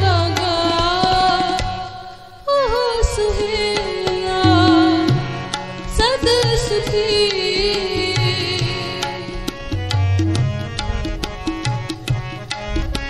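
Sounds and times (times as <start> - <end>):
woman singing: 0.0 - 9.4
harmonium: 0.0 - 13.0
tabla strokes: 0.0 - 13.0.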